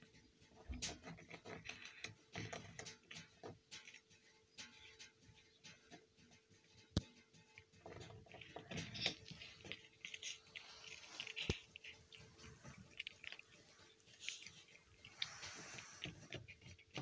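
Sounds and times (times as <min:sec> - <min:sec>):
cat crunching biscuit: 0:07.8 - 0:17.0.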